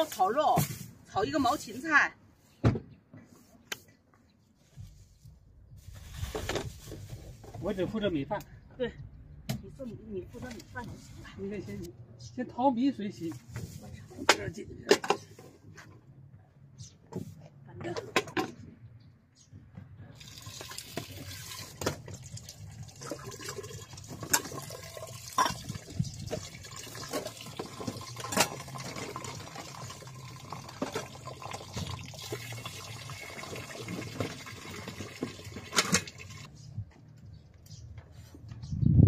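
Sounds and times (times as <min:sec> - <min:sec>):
water running into a pot: 0:20.2 - 0:36.5
pot and bowls clinking: 0:23.0 - 0:32.5.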